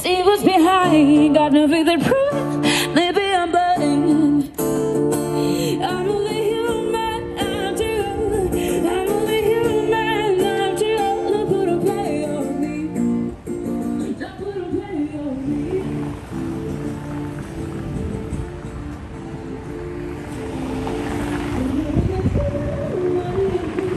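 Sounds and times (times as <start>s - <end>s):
plucked guitar: 0.0s - 23.9s.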